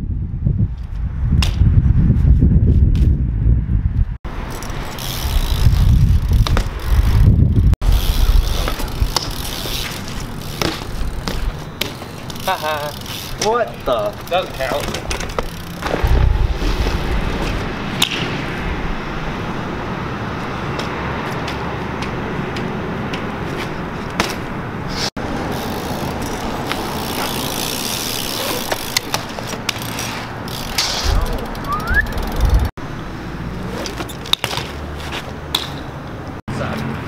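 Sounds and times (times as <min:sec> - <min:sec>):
bikes rolling on concrete: 0:00.7 - 0:37.0
low thumps: 0:15.2 - 0:20.3.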